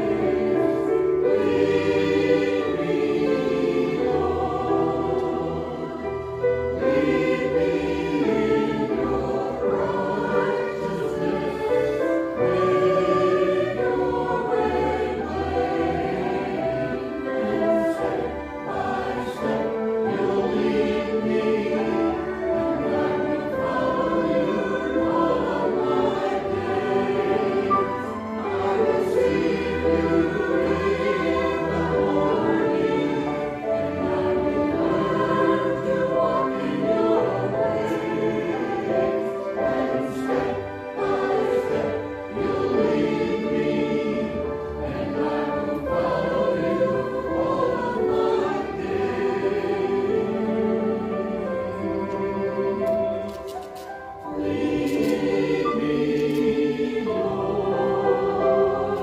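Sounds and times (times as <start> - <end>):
mixed choir singing: 0.0 - 59.0.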